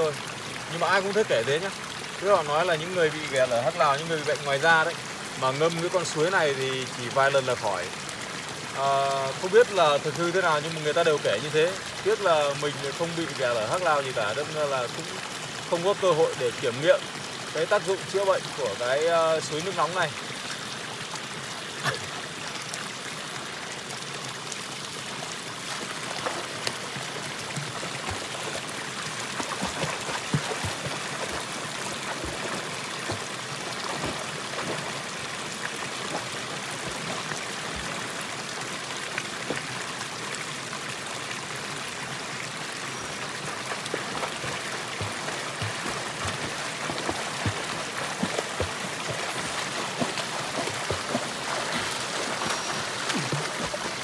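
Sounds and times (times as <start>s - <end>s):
water pouring into a pool: 0.0s - 54.0s
person swimming splashing: 25.6s - 38.1s, 43.5s - 54.0s.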